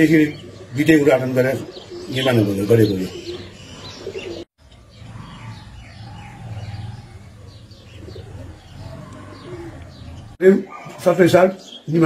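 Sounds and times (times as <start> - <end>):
pigeons cooing: 0.0 - 12.0
small birds chirping: 0.0 - 12.0.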